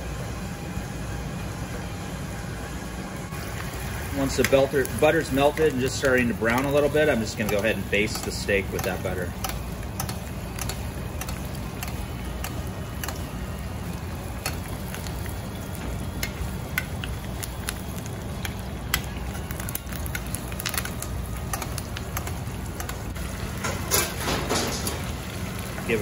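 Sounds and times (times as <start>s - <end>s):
butter and oil sizzling in a pan: 3.3s - 26.0s
metal clatter: 23.6s - 25.1s.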